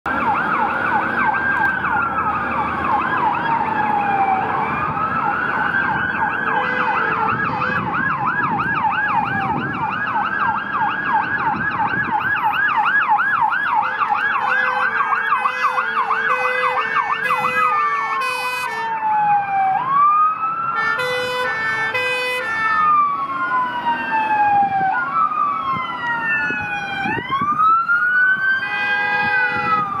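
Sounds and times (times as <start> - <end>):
fire engine sirens wailing and yelping: 0.1 - 30.0
short horn blasts: 28.7 - 29.8.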